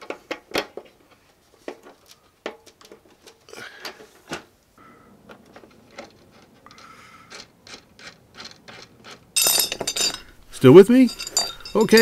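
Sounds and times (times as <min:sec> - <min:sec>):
clicks and rubbing of steel wires: 0:00.0 - 0:04.4, 0:05.3 - 0:12.0
loud metallic clink: 0:09.4 - 0:12.0.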